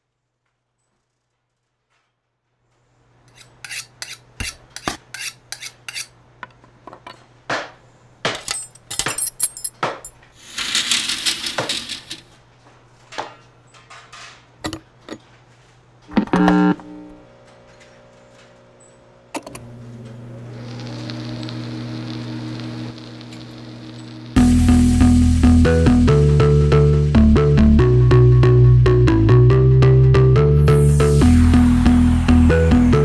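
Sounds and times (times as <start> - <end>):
metallic clinks and knocks: 8.3 - 12.3
steady low hum: 19.6 - 27.3
electronic music: 24.1 - 33.0
hissing swell: 30.5 - 33.0.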